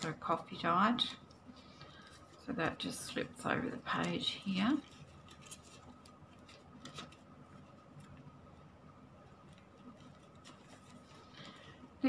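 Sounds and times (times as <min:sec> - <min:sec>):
paper rustling: 0:01.9 - 0:08.6, 0:09.2 - 0:11.9.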